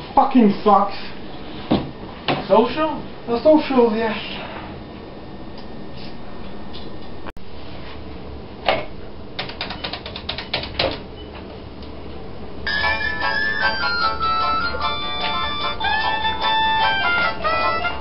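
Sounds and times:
music: 0:12.7 - 0:18.0.

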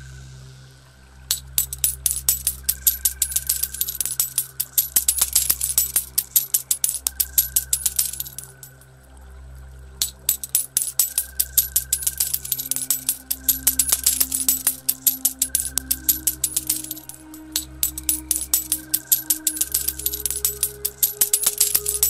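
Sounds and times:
soft music drone: 0:00.0 - 0:22.0
metal coins dropping and clinking: 0:01.3 - 0:08.8, 0:10.0 - 0:22.0.

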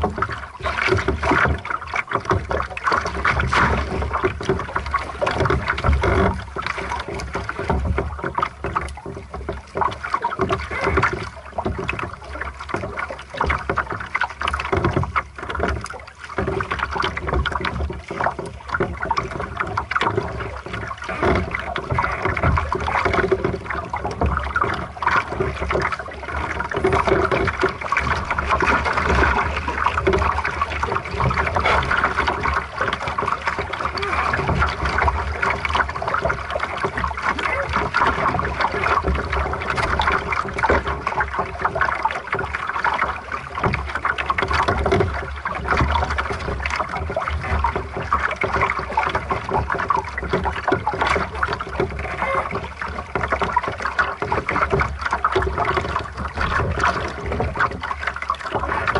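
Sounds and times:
water splashing against hull: 0:00.0 - 0:58.9.

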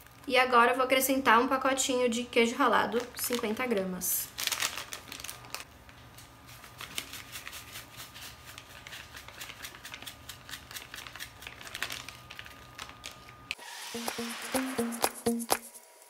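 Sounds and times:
foil packet crinkling: 0:02.8 - 0:13.5.

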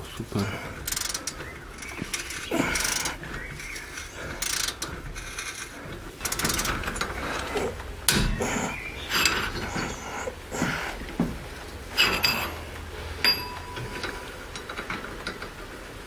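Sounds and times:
hand ratchet clicking: 0:00.8 - 0:07.5.

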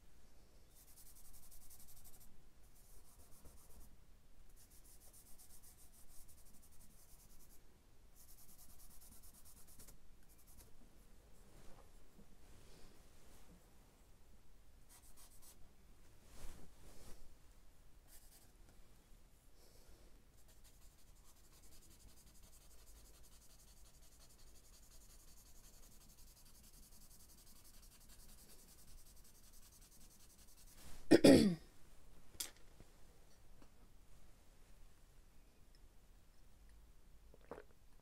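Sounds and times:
charcoal scratching on paper: 0:00.8 - 0:03.9, 0:04.6 - 0:07.6, 0:08.2 - 0:10.7, 0:14.9 - 0:15.6, 0:20.4 - 0:30.8
person coughing: 0:31.1 - 0:31.7.

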